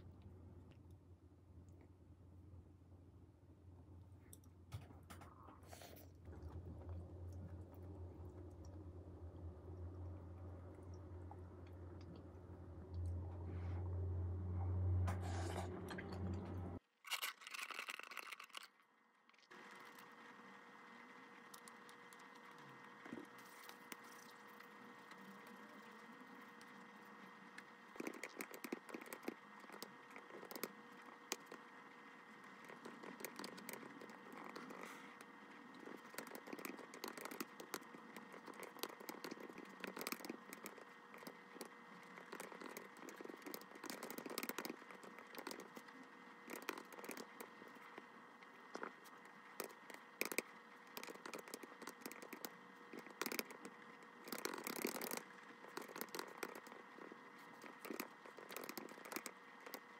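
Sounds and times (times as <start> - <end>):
typing on computer keyboard: 35.8 - 45.8, 46.5 - 47.4, 49.6 - 56.8, 57.6 - 59.8.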